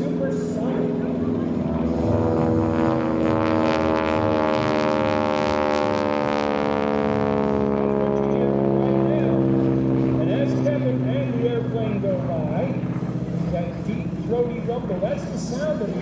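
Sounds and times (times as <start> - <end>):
propeller plane engine droning: 0.0 - 16.0.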